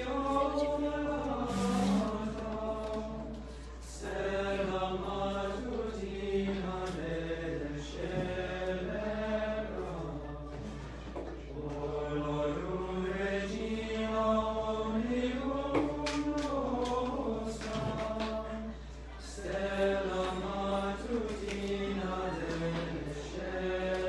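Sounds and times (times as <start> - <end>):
male choir singing a cappella: 0.0 - 24.0.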